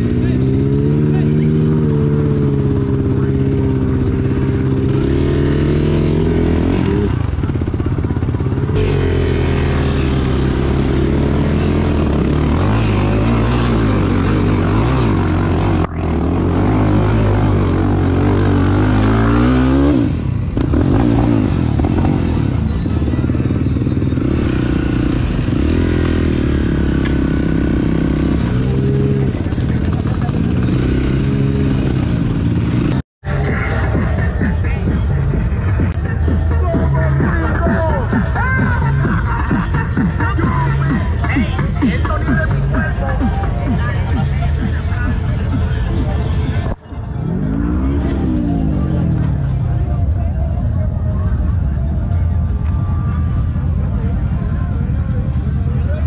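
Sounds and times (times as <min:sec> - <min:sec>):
vehicle engine revving: 0:00.0 - 0:56.0.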